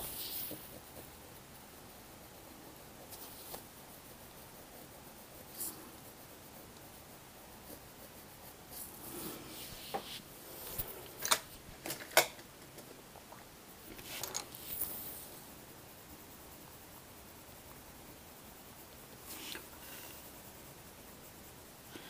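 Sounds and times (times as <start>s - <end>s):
scratchy rubbing and rustling: 0.0s - 12.0s, 13.8s - 17.1s.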